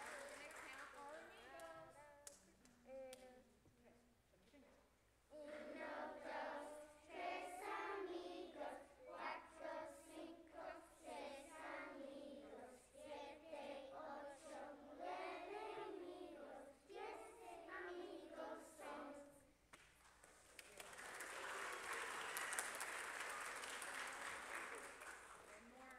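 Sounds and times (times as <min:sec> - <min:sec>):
children singing: 0:05.4 - 0:19.4.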